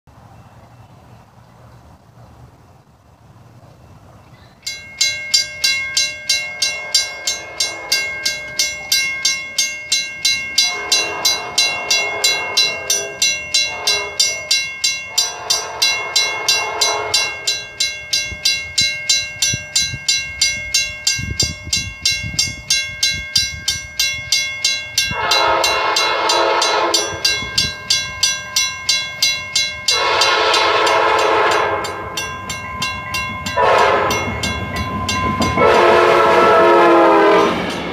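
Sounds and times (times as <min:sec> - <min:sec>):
railroad crossing bell ringing: 0:04.4 - 0:37.9
train horn blasts: 0:06.3 - 0:08.5, 0:10.5 - 0:17.8, 0:25.0 - 0:28.1, 0:29.8 - 0:32.4, 0:33.5 - 0:37.7.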